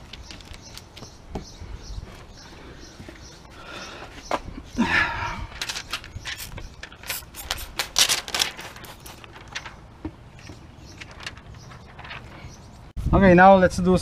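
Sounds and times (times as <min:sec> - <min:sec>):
spray bottle squirts: 0:06.2 - 0:09.4.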